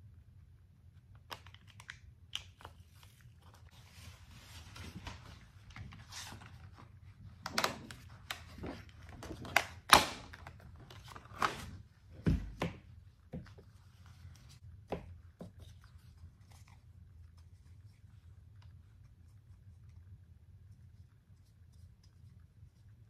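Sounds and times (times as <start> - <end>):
paper rustling and crinkling: 1.3 - 12.6.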